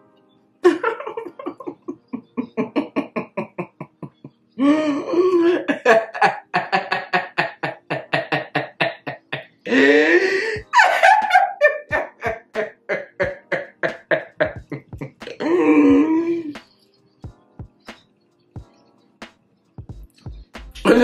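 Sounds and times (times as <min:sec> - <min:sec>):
high wheezing laugh: 0:00.6 - 0:16.6
person laughing hard: 0:00.6 - 0:16.6.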